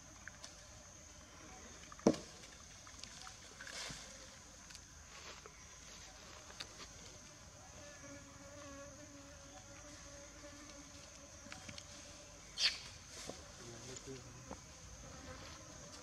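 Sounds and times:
high-pitched insect hum: 0:00.0 - 0:16.0
flying insect buzzing past: 0:07.7 - 0:13.6, 0:14.3 - 0:16.0.

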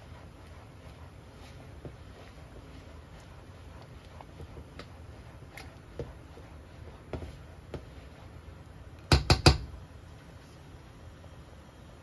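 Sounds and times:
spatula stirring sauce: 0:00.0 - 0:09.2.

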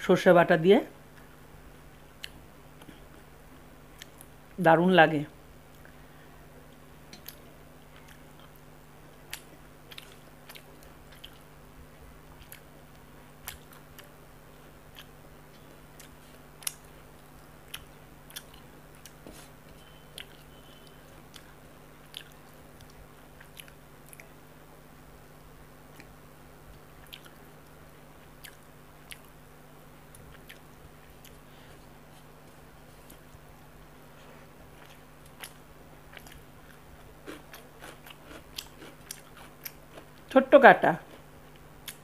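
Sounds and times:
faint low hum: 0:00.0 - 0:42.0
wet chewing smacks: 0:27.0 - 0:27.4, 0:30.1 - 0:31.4.

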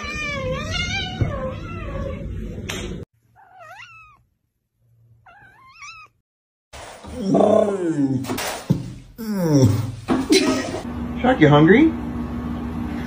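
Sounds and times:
cat meowing: 0:03.4 - 0:04.3, 0:05.3 - 0:06.2.

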